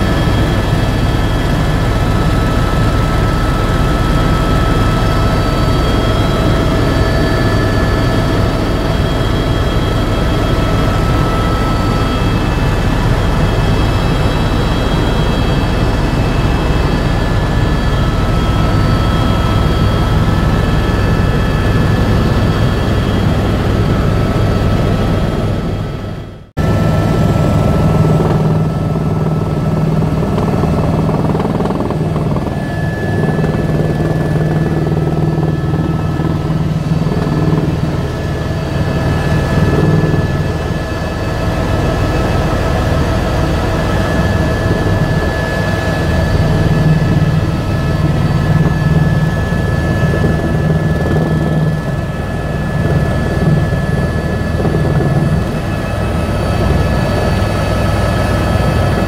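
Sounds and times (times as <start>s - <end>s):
helicopter engine and rotor: 0.0s - 59.0s
high steady whine: 0.0s - 59.0s.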